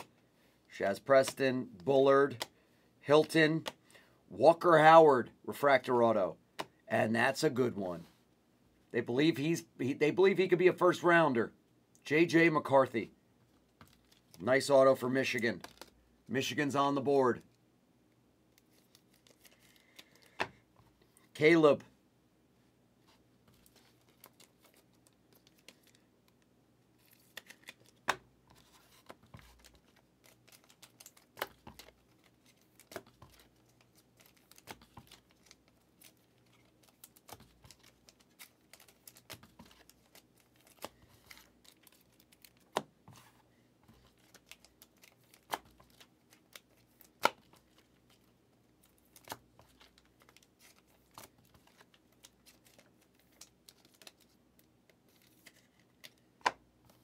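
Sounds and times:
trading cards rustling: 13.7 - 17.4, 18.6 - 21.2, 23.5 - 57.0
cards clicking and snapping: 15.6 - 15.9, 27.0 - 42.9, 44.0 - 47.8.

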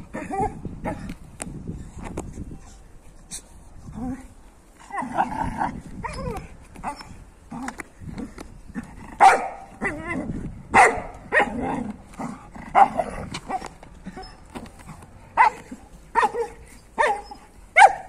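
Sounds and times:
dog barking: 9.2 - 9.7, 10.8 - 11.6, 15.4 - 18.0.

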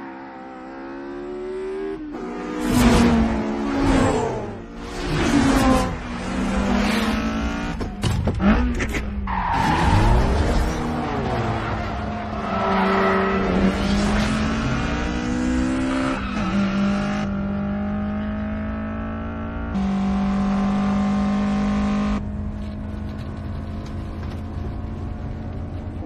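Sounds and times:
sports car engine at high revs: 13.4 - 22.6.

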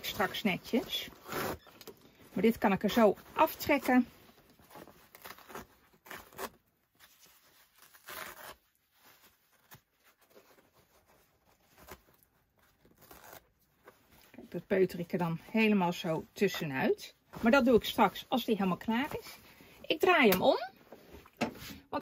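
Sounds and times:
stabilizer ripping off fabric: 7.7 - 8.8, 12.8 - 13.5.

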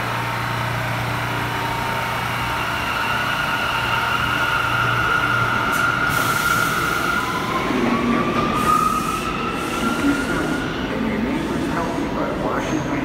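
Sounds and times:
train wheels squealing: 2.5 - 7.8, 8.4 - 10.8.

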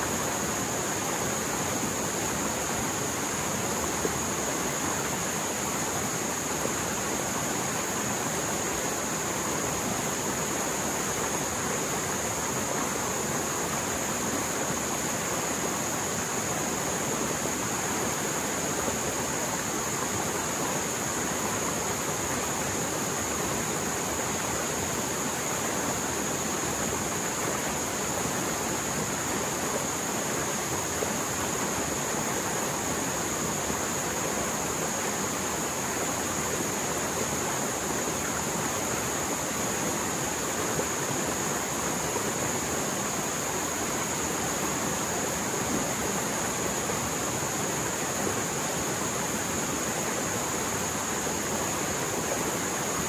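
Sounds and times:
stream water rushing: 0.0 - 53.0.

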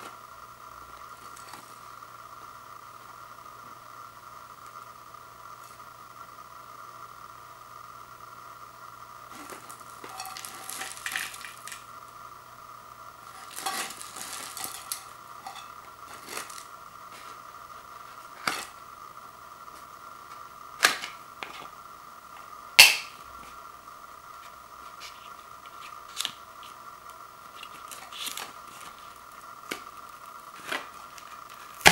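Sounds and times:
faint high hum: 0.0 - 31.9
cardboard can rustling and scraping: 13.3 - 17.4.

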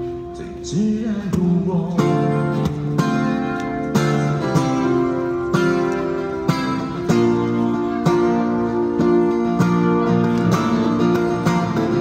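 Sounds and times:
man singing: 0.0 - 2.8
acoustic guitar strumming: 0.0 - 12.0.

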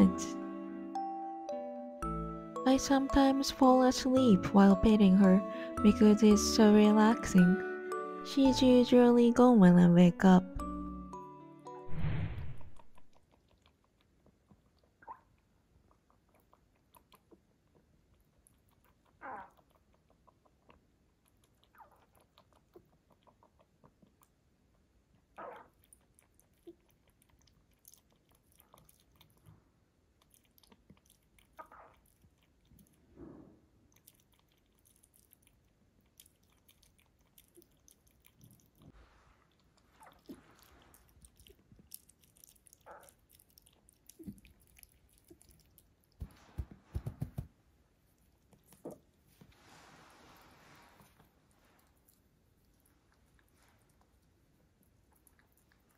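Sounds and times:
rabbit lapping water: 13.0 - 47.2, 50.7 - 55.9.

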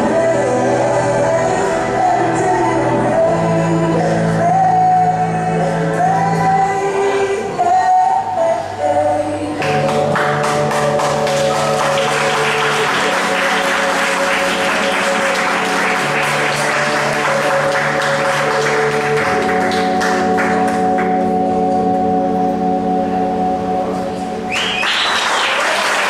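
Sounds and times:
zouk music with sustained chords: 0.0 - 26.0
audience applauding: 9.6 - 21.2, 24.5 - 26.0.

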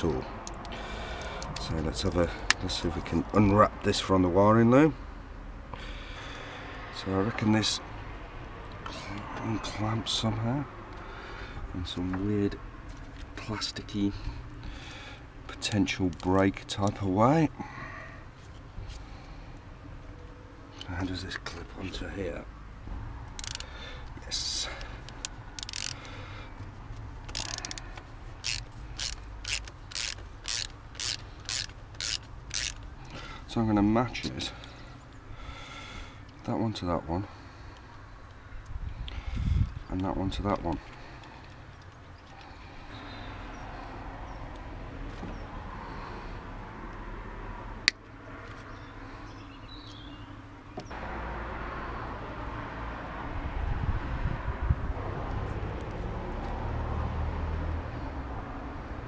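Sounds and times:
steady background noise: 0.0 - 51.2
rasping ratchet-like strokes: 23.3 - 23.8, 24.4 - 26.2, 27.2 - 33.2.

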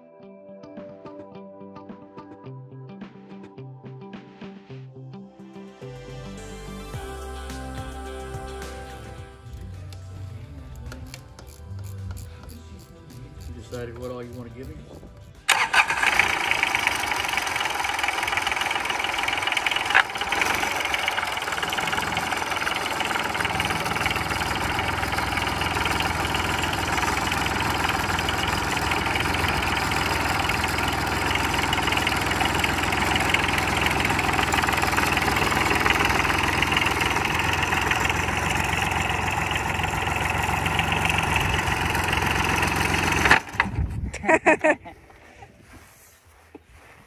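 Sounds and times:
small diesel engine clatter: 10.8 - 43.8.

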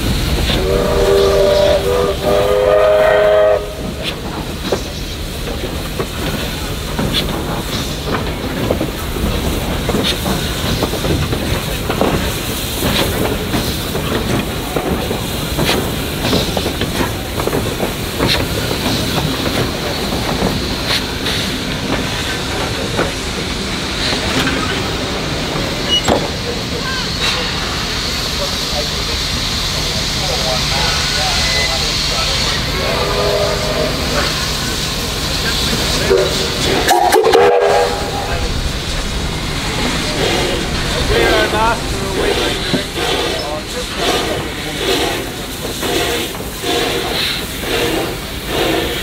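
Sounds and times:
steam locomotive rumbling past: 0.0 - 49.0
steam whistle chord: 36.9 - 38.2.

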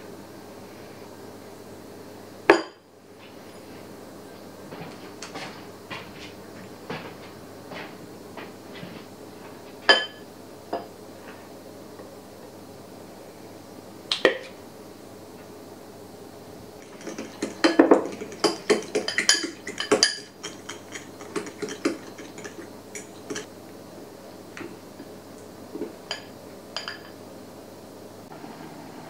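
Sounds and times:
fork clinking against glass bowl: 16.8 - 23.5.

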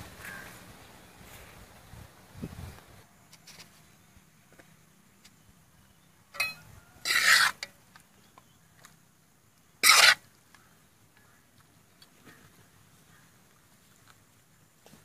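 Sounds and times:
metal ladle scraping a wok: 6.4 - 7.7, 9.8 - 10.2.

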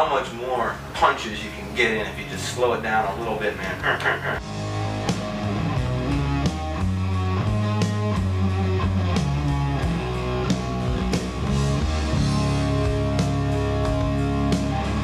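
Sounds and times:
bass: 0.0 - 15.0
electric guitar riff: 3.3 - 15.0.

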